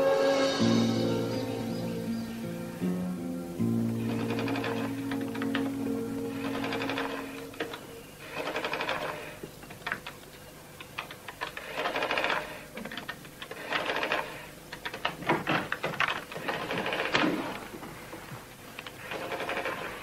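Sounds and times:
calculator printing clicks: 0:03.9 - 0:17.8, 0:18.7 - 0:20.0.

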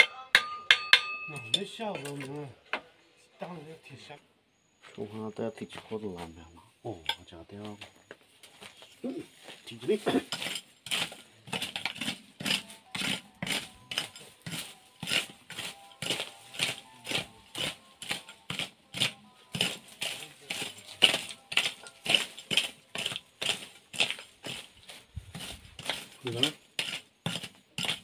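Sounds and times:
hoe chopping into soil: 0:10.1 - 0:28.0.

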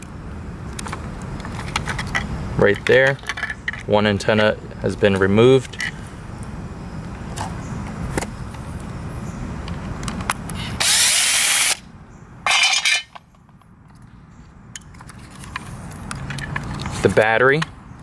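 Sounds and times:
hands handling plastic housing: 0:00.7 - 0:04.5.

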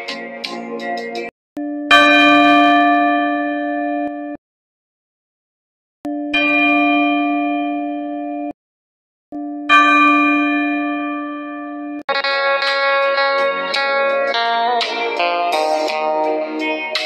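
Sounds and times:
long bell tones: 0:01.6 - 0:04.4
plucked-string music: 0:12.1 - 0:17.0.

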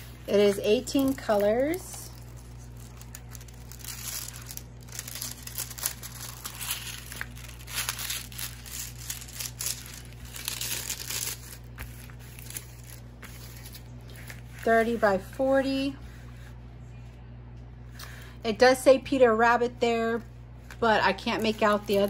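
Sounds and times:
plastic film crinkling: 0:00.0 - 0:15.0, 0:20.7 - 0:22.0.

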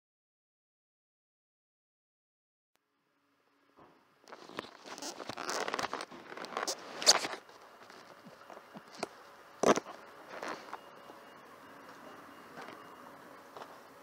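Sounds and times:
faint high tone: 0:10.0 - 0:14.0.

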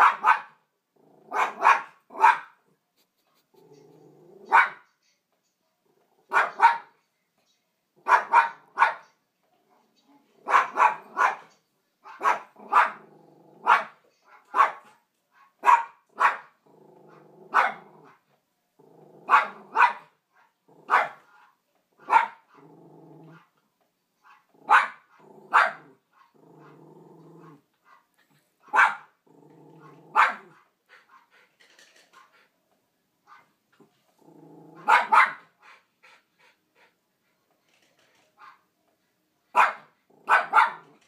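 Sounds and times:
small dog barking: 0:00.0 - 0:00.6, 0:01.3 - 0:02.6, 0:04.4 - 0:04.9, 0:06.3 - 0:07.0, 0:08.0 - 0:09.1, 0:10.4 - 0:16.6, 0:17.4 - 0:18.2, 0:19.2 - 0:20.1, 0:20.8 - 0:21.3, 0:22.0 - 0:22.6, 0:24.3 - 0:26.8, 0:28.6 - 0:29.2, 0:29.8 - 0:30.6, 0:34.7 - 0:35.5, 0:39.5 - 0:41.0
dog growling: 0:01.0 - 0:01.4, 0:03.5 - 0:04.6, 0:12.6 - 0:13.7, 0:16.6 - 0:18.1, 0:18.8 - 0:19.7, 0:22.5 - 0:23.4, 0:24.5 - 0:28.3, 0:29.2 - 0:30.5, 0:34.1 - 0:35.0.

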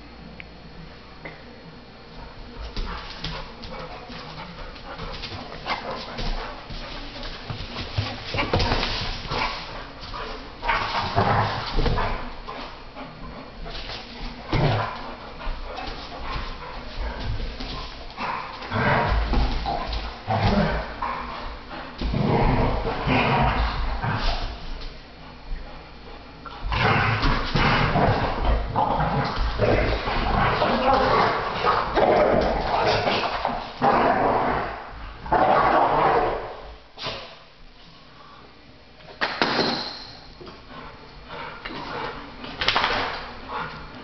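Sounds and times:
dogs growling while play-fighting: 0:02.2 - 0:37.4, 0:40.5 - 0:44.0.

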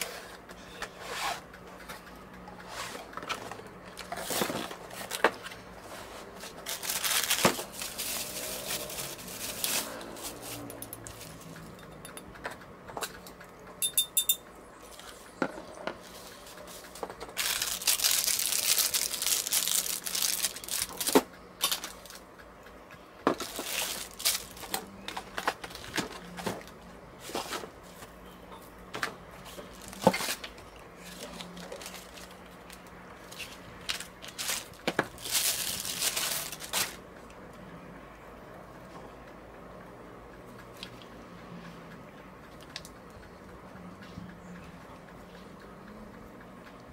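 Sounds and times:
plastic and bubble wrap crinkling: 0:03.2 - 0:11.6, 0:16.0 - 0:22.2, 0:23.3 - 0:27.8, 0:29.5 - 0:37.0
parts knocking and clicking: 0:10.7 - 0:14.5.

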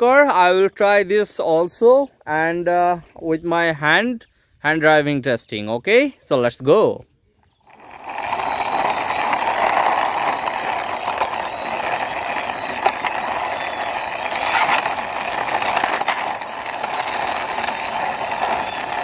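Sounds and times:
toy car wheels rolling on concrete: 0:07.4 - 0:19.0.

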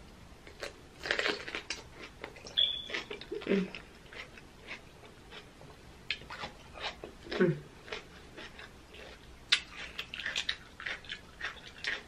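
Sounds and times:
crunching and wet chewing: 0:00.4 - 0:12.0
short high squeak: 0:02.6 - 0:03.1.

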